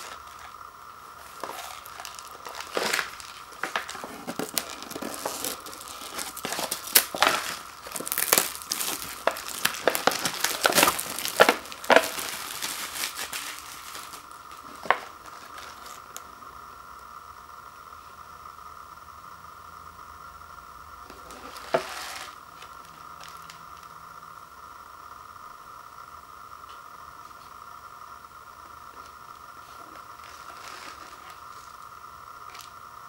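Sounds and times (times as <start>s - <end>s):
plastic shrink wrap crinkling: 0.0s - 16.2s, 21.1s - 23.9s, 29.0s - 31.8s.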